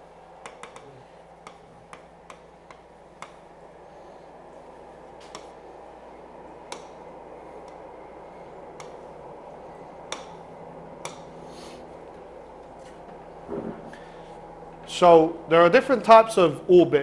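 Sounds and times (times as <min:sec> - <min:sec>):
faint hum and hiss: 0:00.0 - 0:17.0
stylus tapping on tablet: 0:00.5 - 0:00.8.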